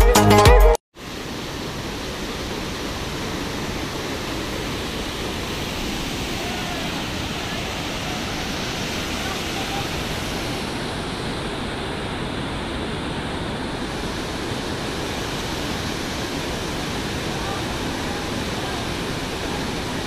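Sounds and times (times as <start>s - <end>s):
music: 0.0s - 0.8s
water rushing through sluice gates: 1.0s - 20.0s.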